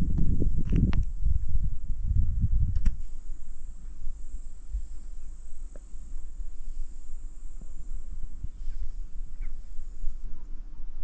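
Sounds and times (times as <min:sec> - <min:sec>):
insects shrilling: 0:02.9 - 0:10.6.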